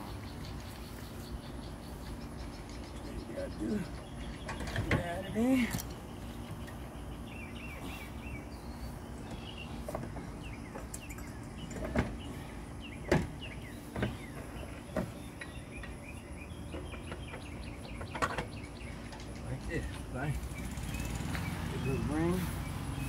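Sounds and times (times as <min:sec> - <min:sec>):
low background hum: 0:00.0 - 0:23.0.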